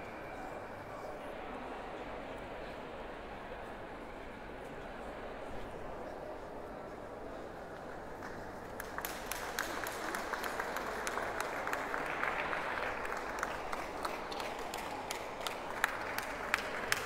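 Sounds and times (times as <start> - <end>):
audience applauding: 8.8 - 17.0.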